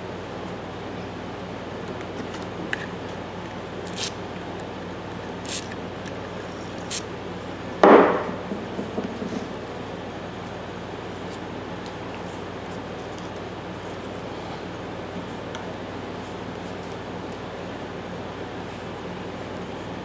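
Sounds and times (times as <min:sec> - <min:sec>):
sharp metal clunk: 0:07.8 - 0:08.9.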